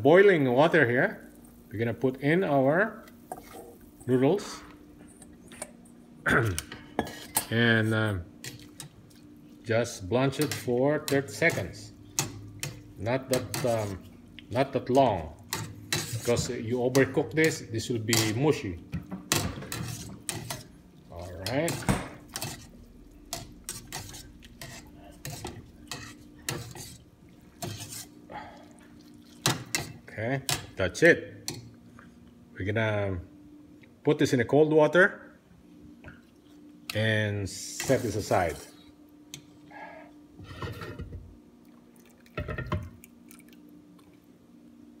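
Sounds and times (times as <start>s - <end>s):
water boiling: 0.0s - 5.0s, 7.7s - 31.8s, 40.4s - 44.4s
metal strainer scraping pot: 15.5s - 18.6s, 19.3s - 27.0s, 27.6s - 28.2s
water sloshing and dripping: 18.9s - 30.0s, 41.6s - 44.3s.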